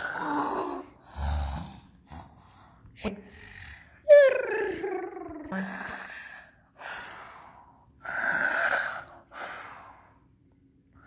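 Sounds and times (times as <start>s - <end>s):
child moaning: 0.0s - 1.0s
child pretend snoring: 0.0s - 2.6s, 8.0s - 9.1s.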